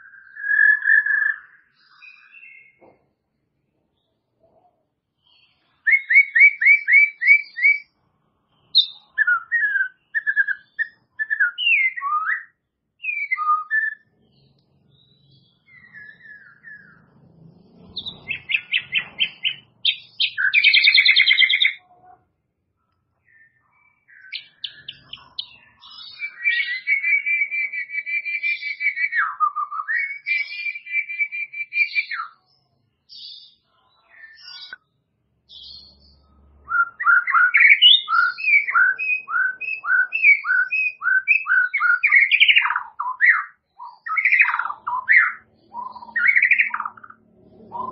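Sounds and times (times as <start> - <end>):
bird singing whistled phrases: 0.0 - 2.8, 5.8 - 7.9, 8.7 - 14.1, 15.0 - 17.0, 18.0 - 21.8, 23.2 - 32.4, 36.7 - 47.9.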